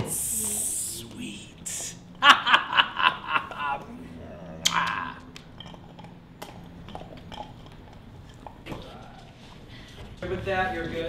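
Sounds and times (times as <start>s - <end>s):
person laughing: 1.6s - 5.2s.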